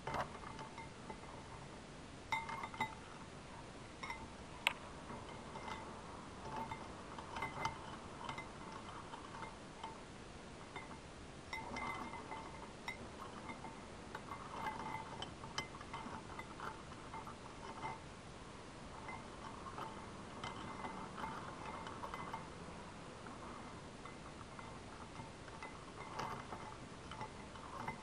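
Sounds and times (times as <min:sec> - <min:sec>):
glass ringing: 0:02.3 - 0:03.0, 0:10.7 - 0:18.0
utensil clinking against glass dish: 0:02.3 - 0:03.0, 0:04.0 - 0:04.3, 0:05.1 - 0:10.0, 0:10.7 - 0:18.0, 0:19.0 - 0:22.6, 0:24.0 - 0:28.0.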